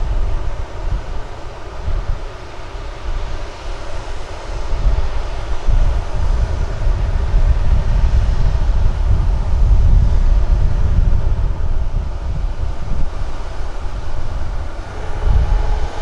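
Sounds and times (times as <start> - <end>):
jet engines roaring: 0.0 - 16.0
deep rumble: 4.6 - 16.0.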